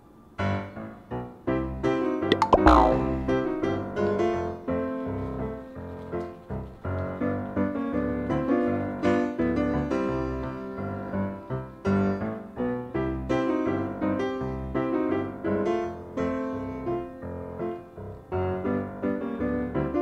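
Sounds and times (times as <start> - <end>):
piano music: 2.3 - 5.2.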